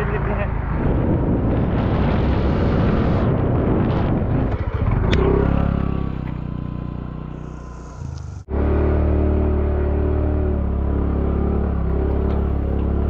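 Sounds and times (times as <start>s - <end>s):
road noise: 0.0s - 13.0s
motor scooter engine running: 4.4s - 13.0s.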